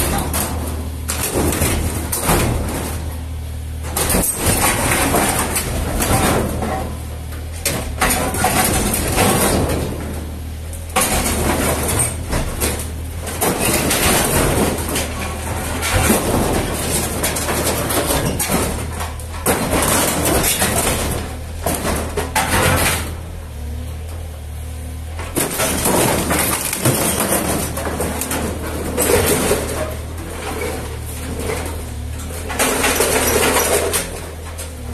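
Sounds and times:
excavator diesel engine running: 0.0s - 34.9s
excavator work noise bursts: 25.2s - 34.9s.

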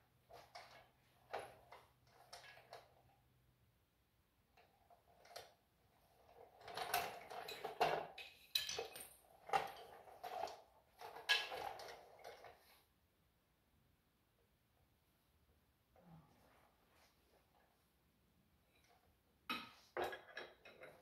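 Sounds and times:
metal tools clinking: 7.3s - 9.2s.

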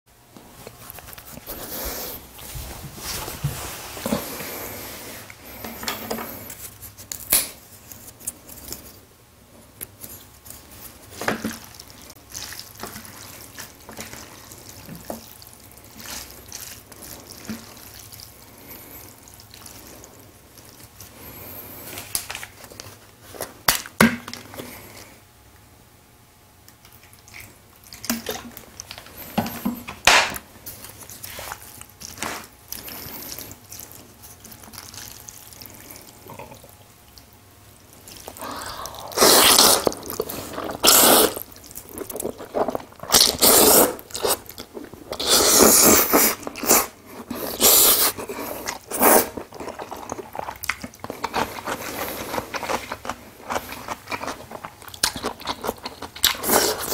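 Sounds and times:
loud wet noodle slurps: 38.3s - 41.5s, 42.6s - 44.5s, 45.2s - 49.4s.

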